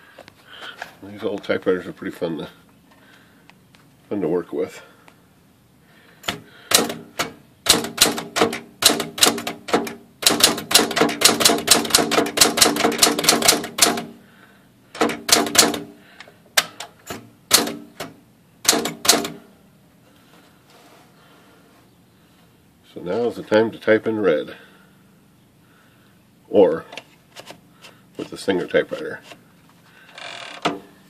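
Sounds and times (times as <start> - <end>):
manual typewriter typing: 6.7 - 14.1, 14.9 - 15.9, 18.7 - 19.4.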